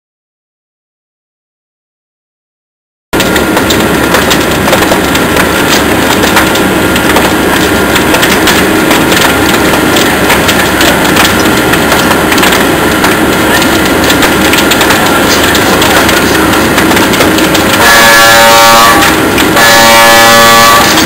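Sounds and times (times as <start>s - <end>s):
fire crackling and popping: 3.2s - 17.9s
steady rushing noise: 3.2s - 21.0s.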